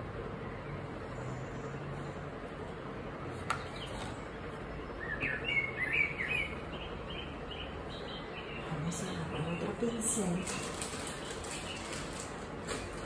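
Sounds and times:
low background hum: 0.0s - 13.0s
bird chirping: 3.5s - 13.0s.

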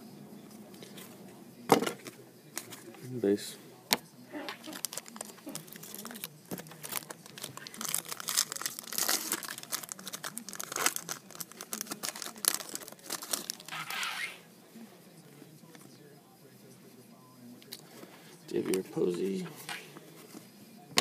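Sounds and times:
card wrappers crinkling and tearing: 4.5s - 14.3s.

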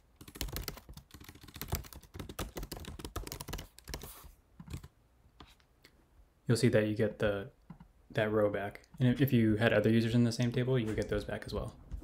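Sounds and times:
fast keyboard typing: 0.2s - 4.9s.

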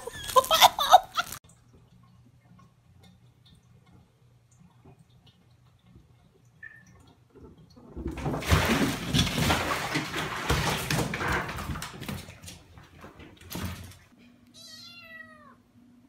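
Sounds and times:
cat splashing in water: 7.9s - 14.0s.

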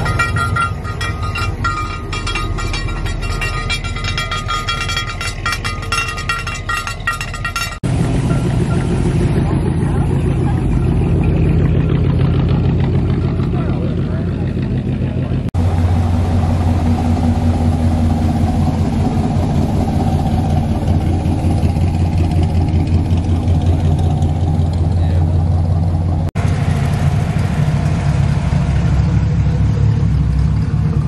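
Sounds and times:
car engine idling: 0.0s - 31.0s
higher-pitched engine running: 7.8s - 31.0s.

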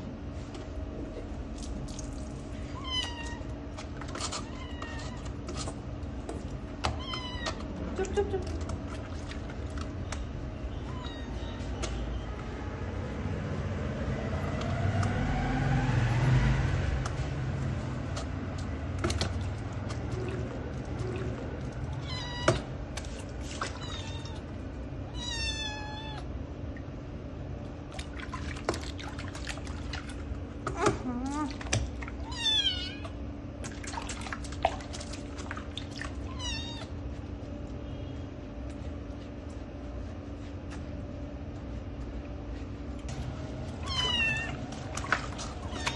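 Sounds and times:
kitten mewing: 43.8s - 44.7s.

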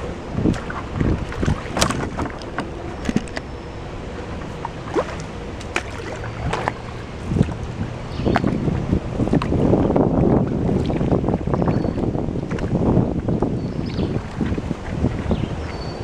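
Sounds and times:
low steady rumble: 0.0s - 16.0s
paddle strokes swishing and dripping: 0.0s - 16.0s
small knocks and splashes: 0.4s - 3.5s, 4.2s - 9.6s, 10.2s - 12.8s.

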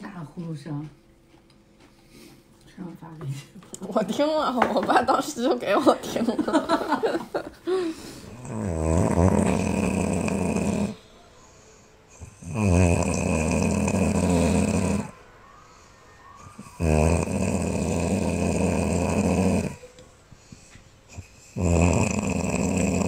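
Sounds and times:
quiet breaths: 1.8s - 3.6s, 7.5s - 23.0s
person snoring: 7.7s - 11.0s, 12.2s - 15.2s, 16.5s - 19.8s, 21.1s - 23.0s.

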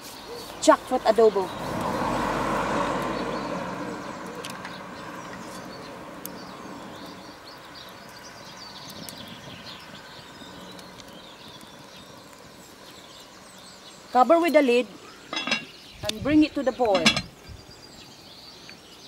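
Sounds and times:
steady hiss: 0.0s - 1.0s
birds chirping: 0.0s - 19.0s
wood fire crackling: 0.0s - 19.0s.

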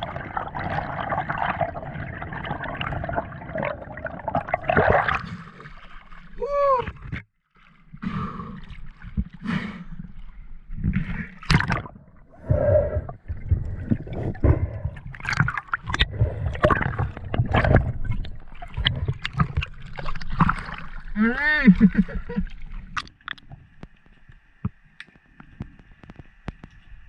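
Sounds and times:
muffled bubbling: 0.0s - 5.3s, 10.9s - 23.2s
water sloshing and gurgling: 0.0s - 27.0s.

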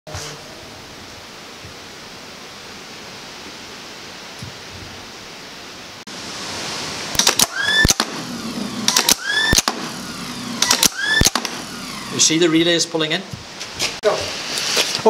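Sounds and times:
steady hiss: 0.1s - 15.0s
starter motor whine: 7.3s - 12.6s
relays clacking: 8.8s - 9.9s, 10.5s - 12.3s.

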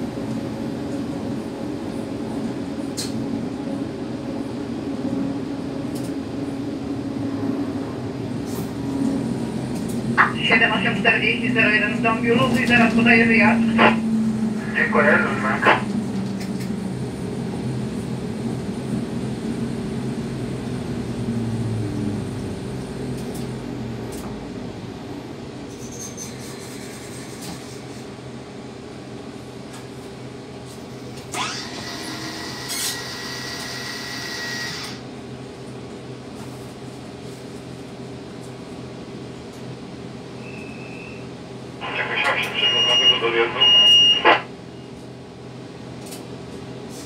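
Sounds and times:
electric train running noise: 30.8s - 35.2s.

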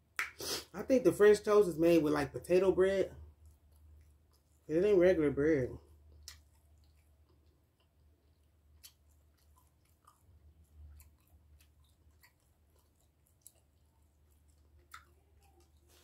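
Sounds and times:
mouth clicks and smacks: 0.1s - 0.7s, 6.1s - 16.0s
low steady hum: 0.8s - 16.0s
faint chewing: 2.2s - 16.0s.

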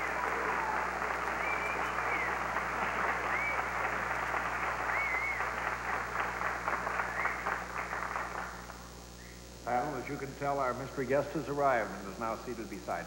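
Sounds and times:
audience applauding: 0.0s - 8.9s.

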